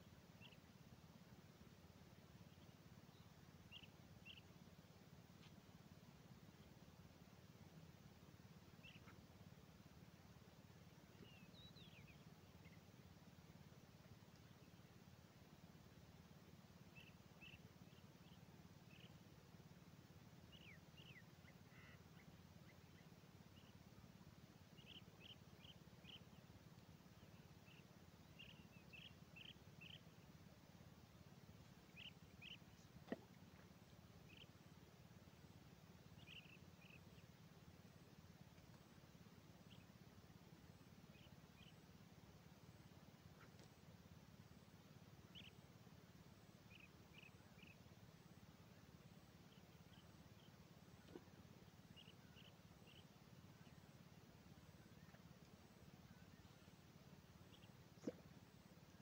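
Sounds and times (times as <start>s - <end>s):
faint bird chirps: 0.0s - 59.0s
low background hum: 0.0s - 59.0s
faint click: 5.4s - 5.6s, 14.2s - 14.6s, 26.7s - 26.9s, 32.5s - 33.7s, 38.5s - 38.8s, 43.3s - 43.8s.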